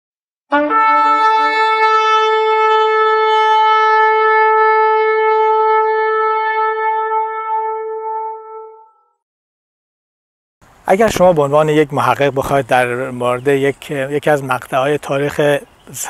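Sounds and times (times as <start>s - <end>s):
shofar blast: 0.5s - 9.2s.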